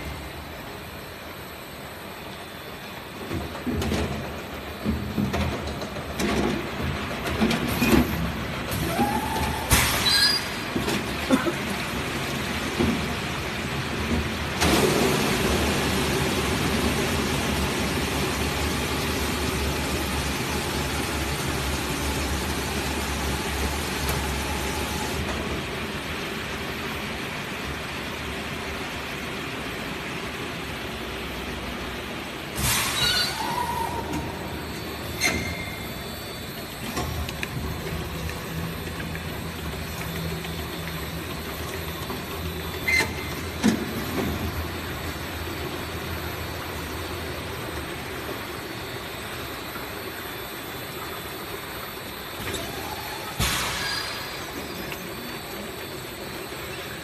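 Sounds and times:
machine mechanical hum: 0.0s - 57.0s.

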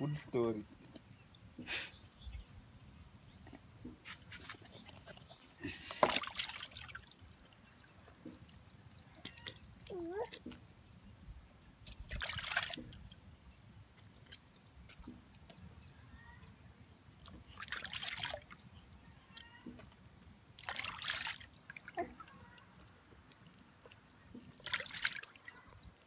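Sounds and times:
water splashing in a basin: 4.4s - 9.6s, 11.8s - 13.2s, 17.2s - 19.8s, 20.5s - 26.0s
faint high chirping: 12.7s - 19.8s
water trickling and dripping: 17.2s - 26.0s.

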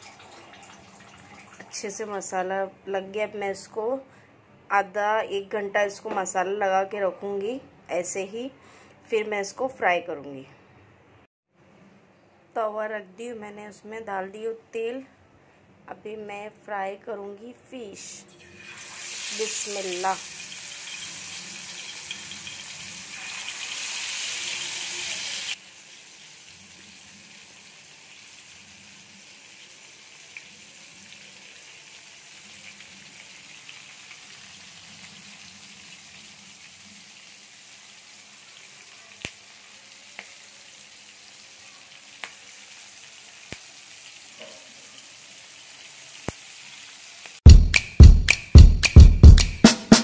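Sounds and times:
fish sizzling in hot oil: 18.4s - 47.4s.

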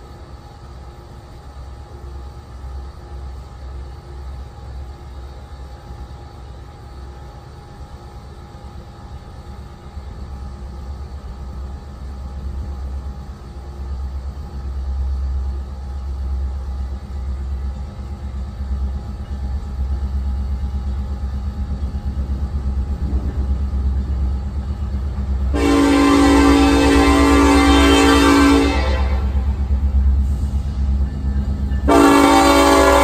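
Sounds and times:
diesel locomotive rumble: 0.0s - 33.0s
train horn: 25.5s - 29.7s, 31.8s - 33.0s.

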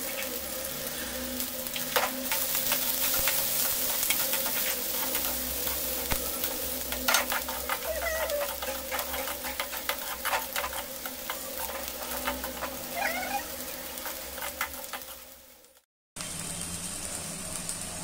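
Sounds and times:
onions sizzling in oil: 0.0s - 18.0s
metal spatula scraping pan: 1.9s - 15.4s.

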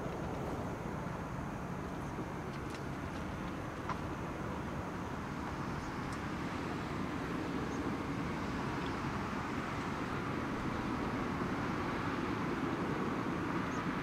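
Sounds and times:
distant jet rumble and hiss: 0.0s - 14.0s.

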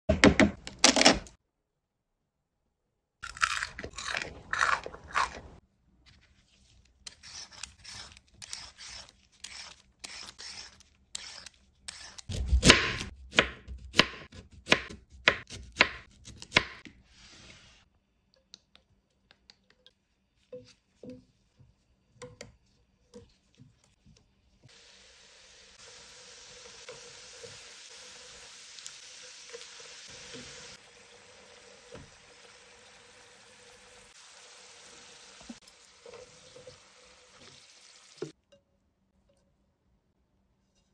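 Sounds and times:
slices sizzling in oil: 7.0s - 13.0s, 24.6s - 38.4s.

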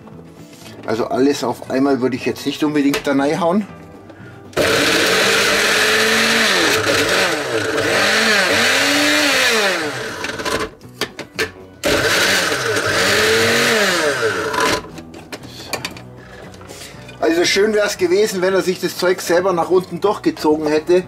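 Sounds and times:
blender motor chopping vegetables: 4.6s - 10.8s, 11.8s - 14.9s.

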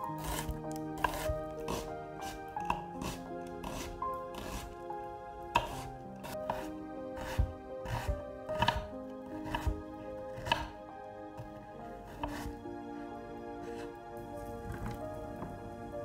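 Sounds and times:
knife slicing onion on board: 0.2s - 4.7s, 5.6s - 9.8s, 10.4s - 10.7s, 12.1s - 12.5s.

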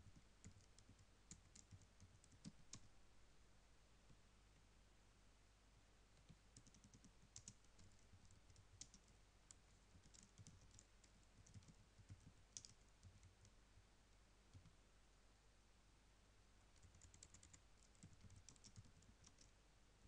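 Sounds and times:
keyboard typing: 0.0s - 2.9s, 6.2s - 13.6s, 14.5s - 14.8s, 16.7s - 19.5s.

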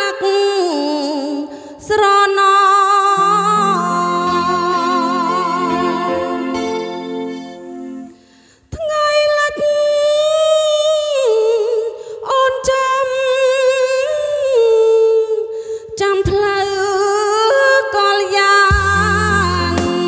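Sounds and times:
woman singing into a microphone: 0.0s - 20.0s
band bass and drums: 18.7s - 20.0s.

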